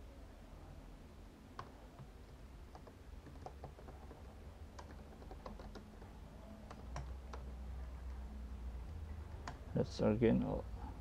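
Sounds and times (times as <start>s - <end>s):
computer keyboard keystrokes: 1.6s - 7.5s.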